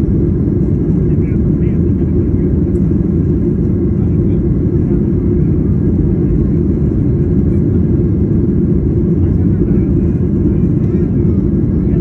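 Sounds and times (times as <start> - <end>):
jet engine cabin roar: 0.0 - 12.0.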